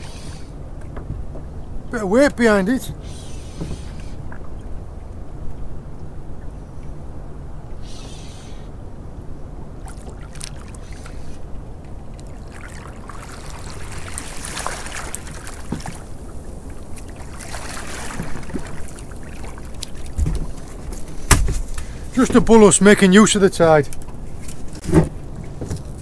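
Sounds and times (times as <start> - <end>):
wind and water rumble: 0.0 - 26.0
fish splashing at the surface: 12.2 - 16.2, 16.8 - 20.2.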